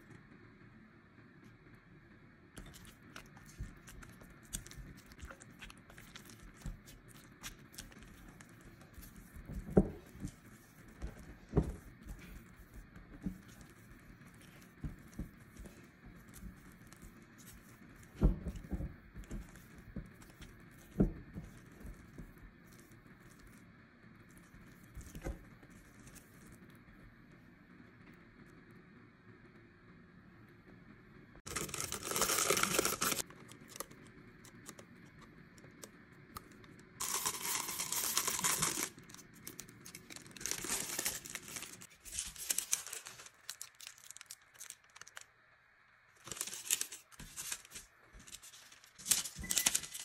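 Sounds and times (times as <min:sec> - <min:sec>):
dough squelching: 0:02.6 - 0:27.1, 0:31.5 - 0:45.2.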